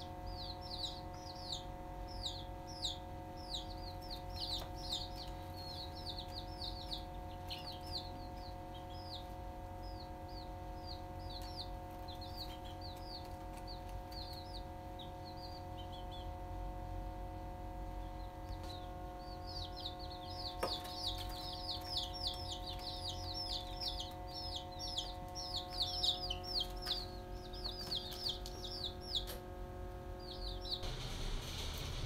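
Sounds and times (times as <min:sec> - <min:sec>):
chicks peeping: 0:00.0 - 0:32.0
steady low hum: 0:00.0 - 0:32.0.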